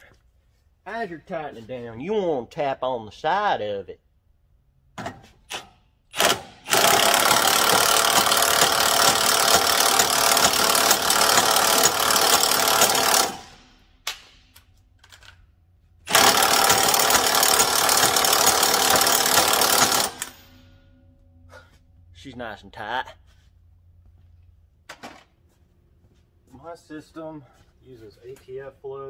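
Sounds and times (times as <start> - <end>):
cordless impact wrench hammering: 5.0 - 15.4, 16.0 - 20.6.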